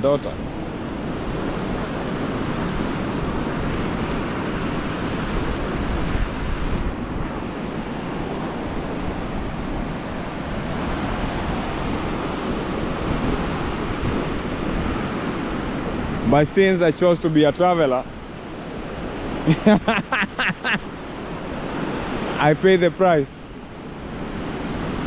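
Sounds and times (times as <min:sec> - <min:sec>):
wind rumbling on microphone: 0:00.0 - 0:16.5
surf washing up a beach: 0:00.0 - 0:25.0.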